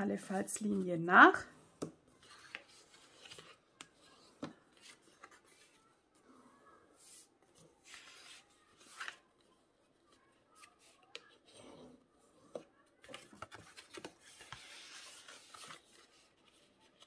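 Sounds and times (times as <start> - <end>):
paper rustling: 2.1 - 6.0, 7.0 - 11.5, 13.0 - 17.0
paper folding and creasing: 2.1 - 6.4, 7.0 - 11.6, 13.0 - 17.0.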